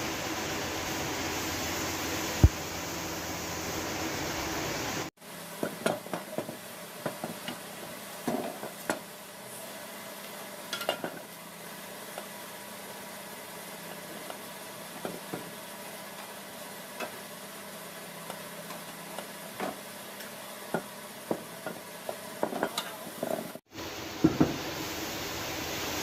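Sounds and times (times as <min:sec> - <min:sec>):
steady hiss: 0:00.0 - 0:26.0.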